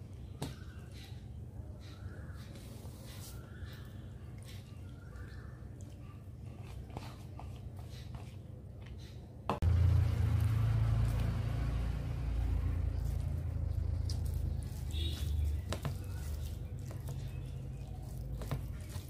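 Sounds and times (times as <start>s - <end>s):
loud steady low rumble: 9.6s - 15.1s
fingers squishing food: 13.0s - 19.0s.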